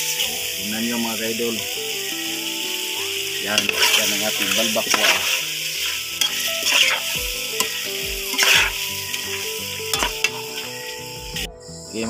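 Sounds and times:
food sizzling in a metal pot: 0:00.0 - 0:11.5
spoon scraping a pot: 0:03.6 - 0:10.7.

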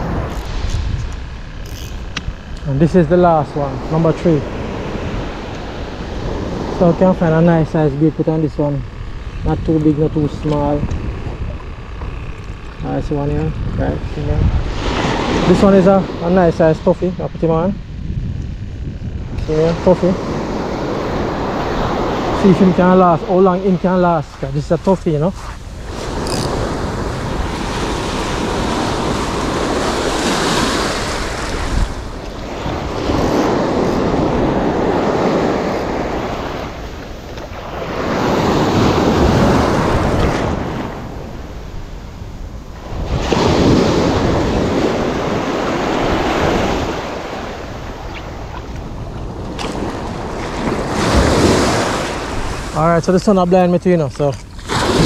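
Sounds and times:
surf breaking on a beach: 0:02.4 - 0:09.0, 0:14.2 - 0:17.6, 0:19.5 - 0:55.0.

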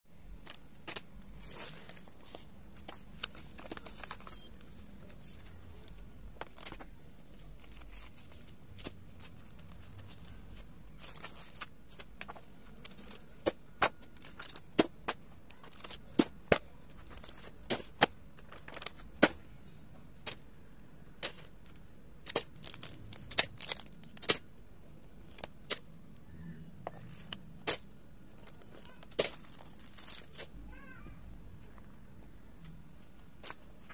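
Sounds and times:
plastic and cloth rustling: 0:00.4 - 0:19.4, 0:21.1 - 0:24.4, 0:26.9 - 0:31.0.

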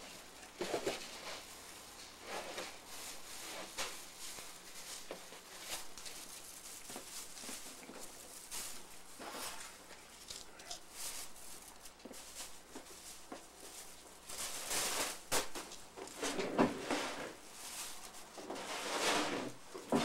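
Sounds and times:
plastic bag rustling: 0:00.0 - 0:20.0.

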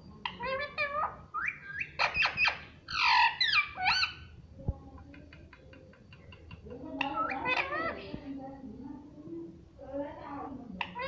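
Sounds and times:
parakeet chattering and squawking: 0:00.2 - 0:04.4, 0:05.5 - 0:08.1, 0:10.8 - 0:11.0.

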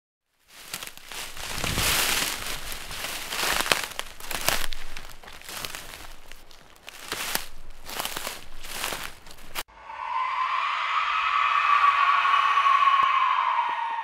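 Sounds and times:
crackling crunching noise: 0:00.2 - 0:09.7.

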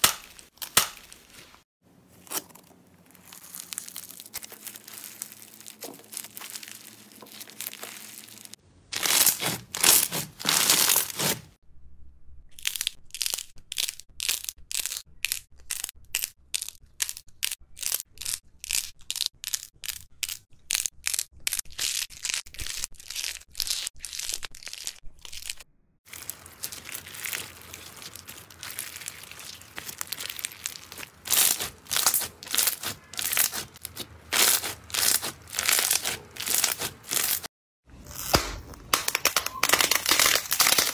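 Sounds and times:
slime crackling and popping: 0:03.1 - 0:11.4, 0:20.7 - 0:37.5, 0:38.1 - 0:40.9.

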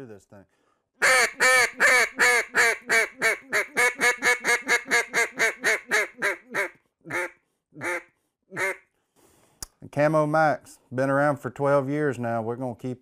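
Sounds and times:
duck call raspy quacks: 0:01.0 - 0:08.8.

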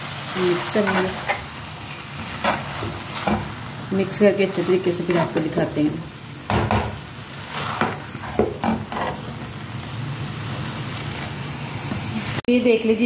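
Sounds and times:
food sizzling: 0:00.0 - 0:13.0
spatula scraping frying pan: 0:00.3 - 0:05.8, 0:06.4 - 0:09.6.

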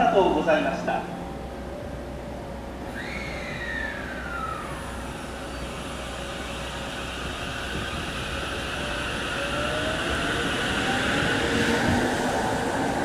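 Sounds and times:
electric train running noise: 0:00.0 - 0:13.0
train motor whine rising: 0:02.8 - 0:13.0.

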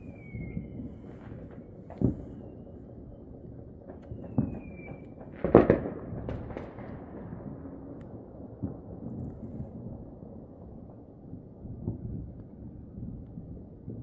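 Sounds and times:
fireworks banging: 0:00.0 - 0:02.7, 0:03.8 - 0:07.2
firework whistle: 0:00.0 - 0:02.8, 0:04.0 - 0:05.3.

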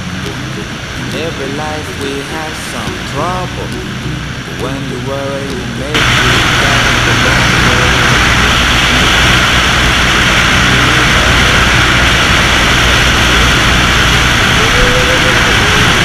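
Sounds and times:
propeller engine drone: 0:00.0 - 0:16.0.

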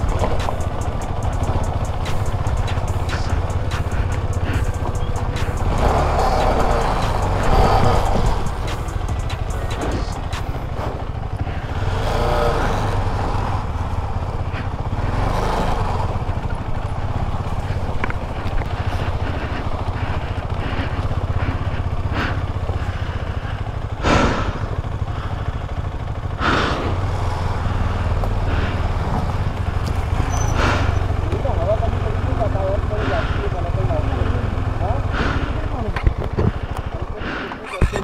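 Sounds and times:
motorcycle engine running: 0:00.0 - 0:38.0
wind and riding noise: 0:00.0 - 0:38.0.

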